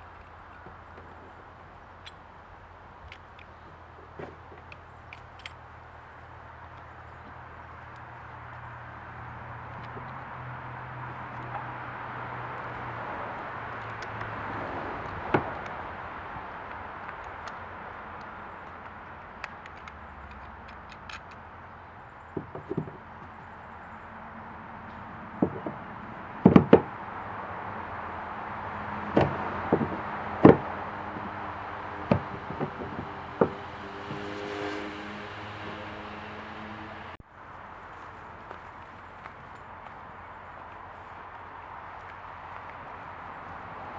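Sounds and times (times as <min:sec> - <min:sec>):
hard plastic knocks and clicks: 0:22.3 - 0:23.0, 0:25.4 - 0:25.8, 0:26.4 - 0:26.9, 0:29.1 - 0:30.8, 0:32.0 - 0:34.2.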